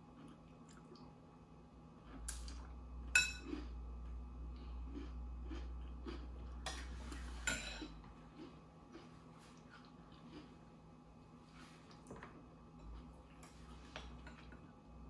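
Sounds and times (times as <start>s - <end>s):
chewing crunchy cereal: 0.0s - 1.1s, 1.9s - 10.8s, 11.4s - 14.8s
spoon clinking glass bowl: 3.2s - 3.5s.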